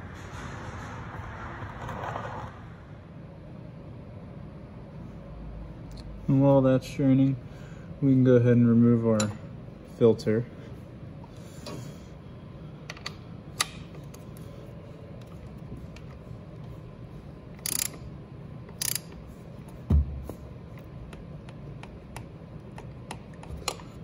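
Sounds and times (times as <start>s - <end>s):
ratchet clicking: 17.6s - 18.1s, 18.7s - 19.2s.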